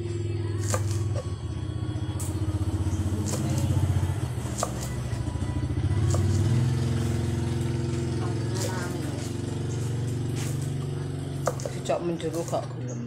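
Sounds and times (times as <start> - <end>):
small engine humming: 0.0 - 13.0
knife chopping on wooden board: 0.6 - 1.0, 3.2 - 3.7, 4.4 - 5.0, 6.1 - 6.5, 11.4 - 12.4.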